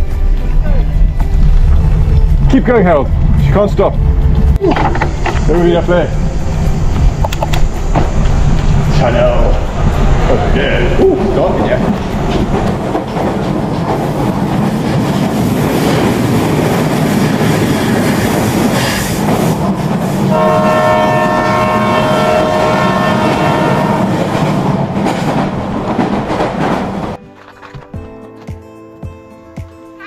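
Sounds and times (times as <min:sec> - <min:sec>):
train rumbling and clattering: 0:00.0 - 0:28.6
train horn: 0:20.3 - 0:24.3.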